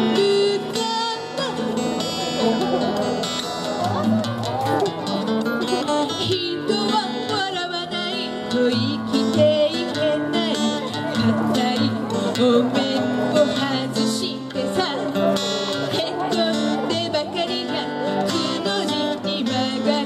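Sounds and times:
woman singing: 0:00.0 - 0:01.8, 0:05.9 - 0:20.0
strummed acoustic guitar: 0:00.0 - 0:20.0.

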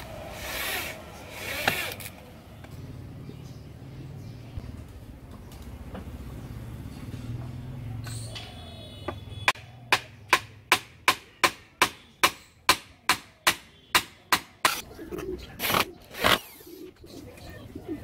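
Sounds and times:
hammer striking wood: 0:09.5 - 0:14.8.

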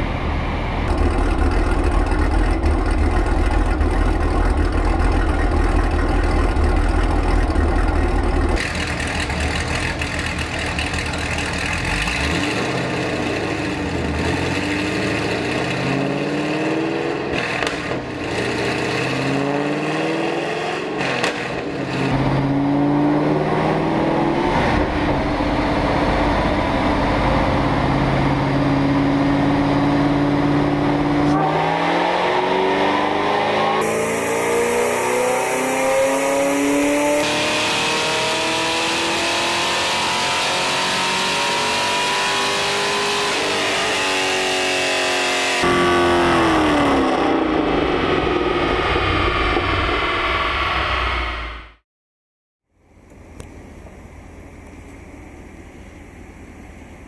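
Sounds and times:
car engine revving on dyno: 0:11.5 - 0:51.8.

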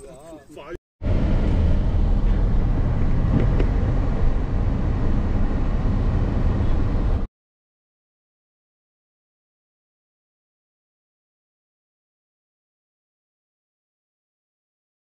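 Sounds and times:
road and wind noise rumble: 0:00.6 - 0:07.3.

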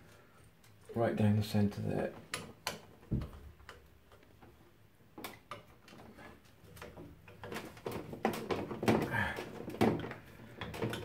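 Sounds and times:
dull knock: 0:03.1 - 0:03.5.

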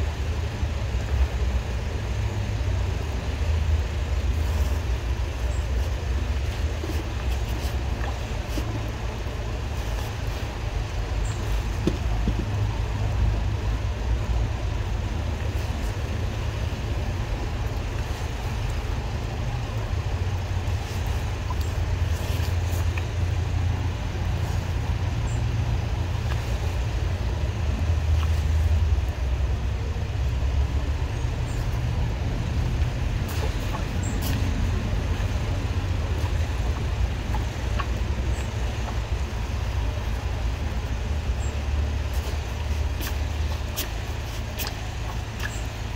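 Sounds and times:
engine drone: 0:00.0 - 0:45.9.

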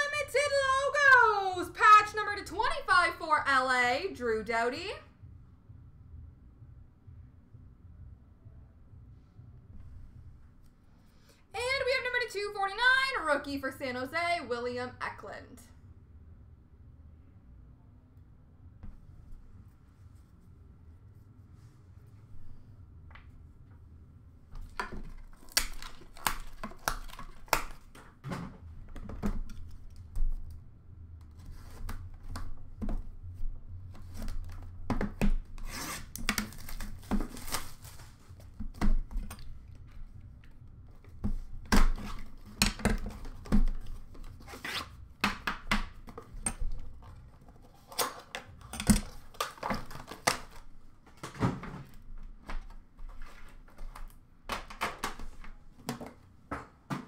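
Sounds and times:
cardboard rubbing and scraping: 0:35.6 - 0:38.5, 0:43.1 - 0:45.0.

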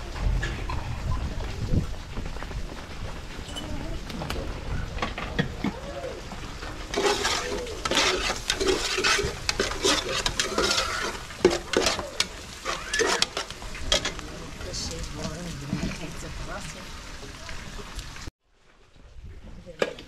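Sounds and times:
spoon scraping in cooking pot: 0:06.9 - 0:14.1.

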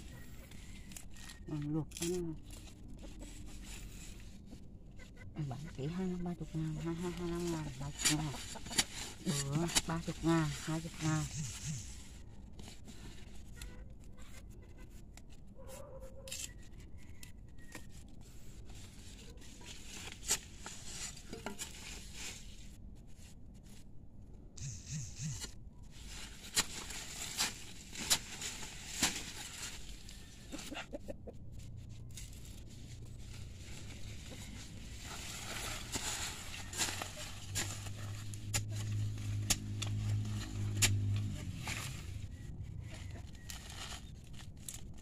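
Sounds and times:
hand hoe chopping soil: 0:07.0 - 0:10.9, 0:26.3 - 0:29.8, 0:35.2 - 0:42.2.

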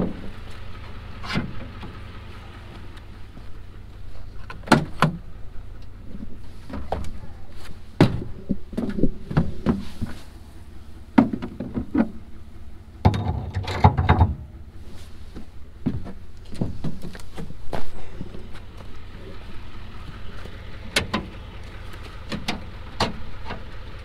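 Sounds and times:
low steady rumble: 0:00.0 - 0:24.0
metallic clunks and knocks: 0:13.0 - 0:14.6.

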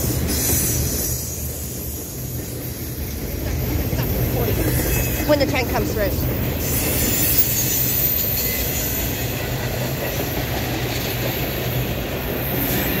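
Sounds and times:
steel wheels rolling on track: 0:00.0 - 0:13.0.

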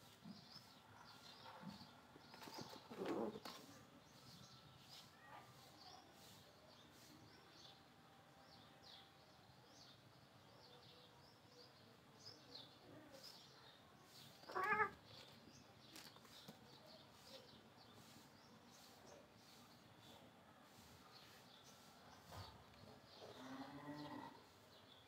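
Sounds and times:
small birds chirping: 0:00.0 - 0:25.0
cat meowing: 0:14.5 - 0:15.0.

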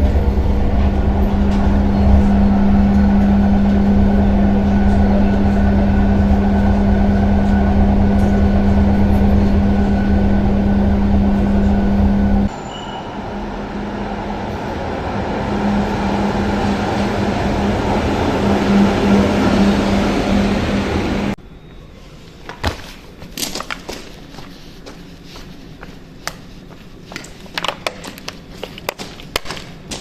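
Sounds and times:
tram motor hum: 0:00.0 - 0:21.4
tram rumbling: 0:00.0 - 0:30.0.

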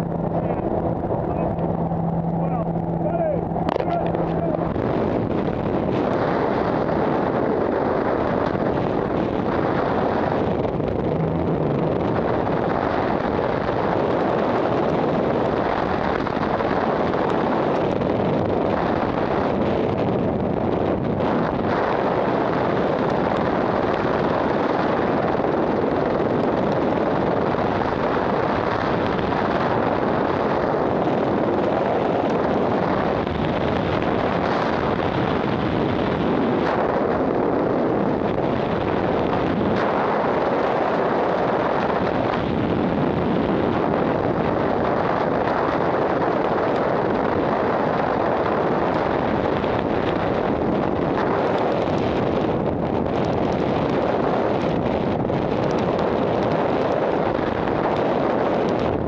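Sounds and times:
loud rushing wind: 0:00.0 - 0:59.0.

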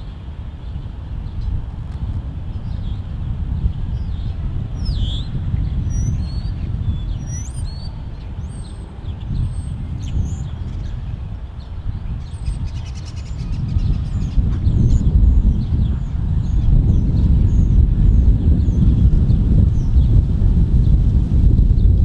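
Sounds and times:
birds chirping and whistling: 0:04.0 - 0:11.0, 0:11.6 - 0:20.2.

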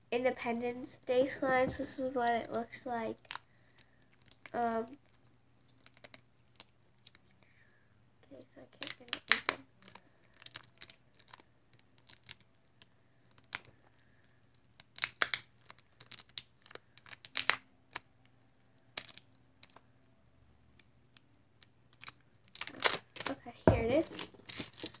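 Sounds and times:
plastic seal crinkling and tearing: 0:03.2 - 0:07.4, 0:08.7 - 0:19.9, 0:20.8 - 0:25.0.

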